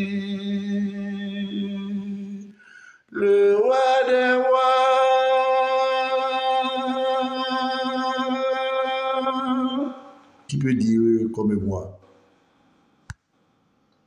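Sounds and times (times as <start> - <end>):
man singing long held notes: 0.0 - 10.3.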